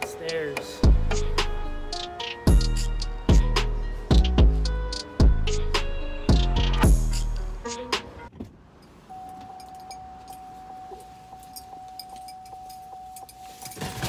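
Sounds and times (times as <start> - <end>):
pulsing door warning chime: 9.1 - 13.5
rustle of person climbing in: 10.2 - 14.0.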